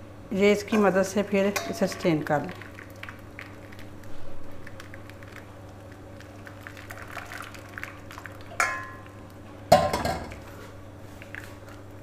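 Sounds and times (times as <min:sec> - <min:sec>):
pulp pouring into strainer: 0:02.5 - 0:09.3.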